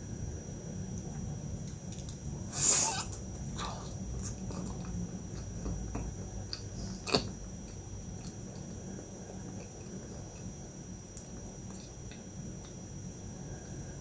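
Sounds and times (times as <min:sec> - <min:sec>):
chewing pastry: 0:03.0 - 0:10.6.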